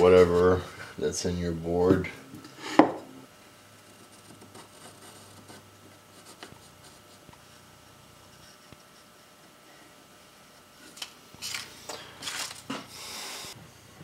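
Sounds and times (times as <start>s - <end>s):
pencil scratching on wood: 3.8s - 7.6s, 8.2s - 9.5s.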